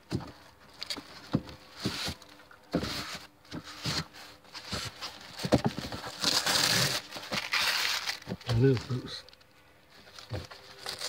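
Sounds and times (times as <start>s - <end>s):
cardboard boxes knocking and thumping: 0.0s - 6.4s
cardboard scraping and rustling: 0.0s - 9.2s, 10.0s - 11.0s.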